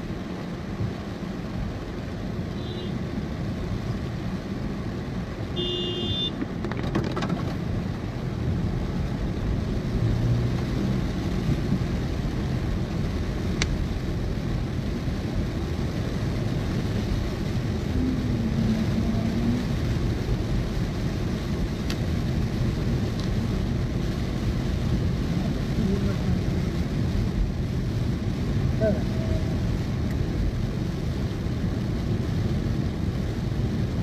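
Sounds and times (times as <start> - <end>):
car tyres on wet road: 0.0 - 34.0.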